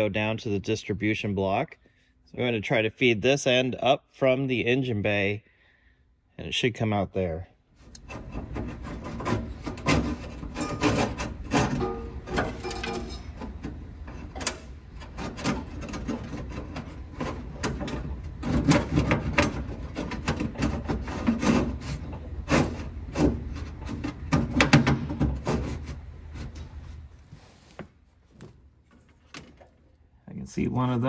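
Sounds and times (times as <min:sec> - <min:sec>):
wiring rubbing and scraping: 0:07.8 - 0:30.0.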